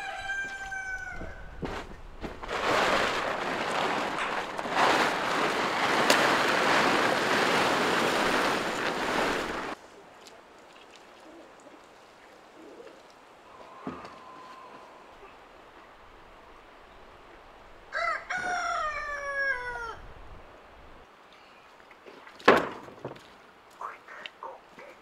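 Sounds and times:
plastic tarp rustling: 1.6s - 9.8s.

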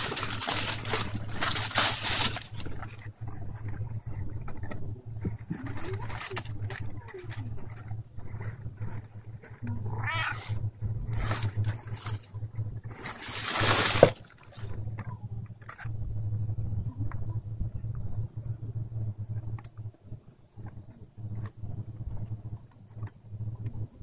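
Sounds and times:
packing paper crinkling: 0.0s - 3.8s, 5.5s - 9.8s, 12.9s - 14.7s
cat purring: 0.0s - 24.0s
cat meowing: 9.8s - 10.6s.

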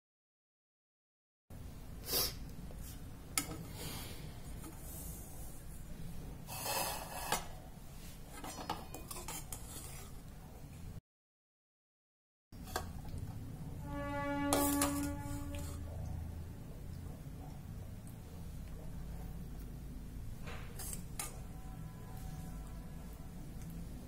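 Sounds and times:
utensil scraping a dish: 6.4s - 10.2s, 13.9s - 16.1s, 20.6s - 21.6s
low steady hum: 12.6s - 24.0s.

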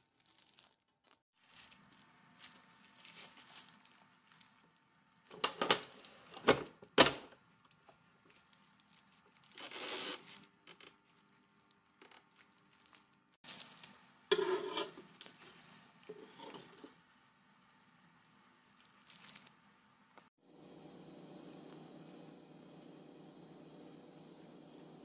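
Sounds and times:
metal spatula scraping grill plate: 14.3s - 15.5s, 16.1s - 16.9s.

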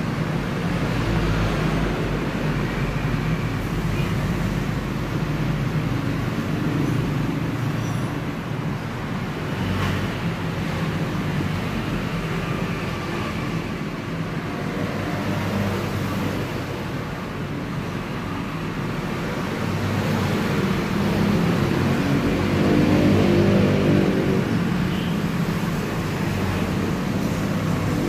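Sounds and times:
road traffic hum: 0.0s - 28.0s
passing vehicle engine: 19.4s - 24.9s.

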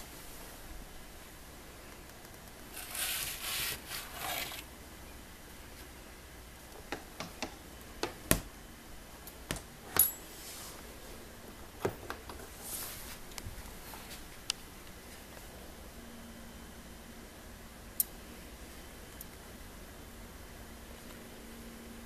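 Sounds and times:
scraping rustle: 2.7s - 4.7s.

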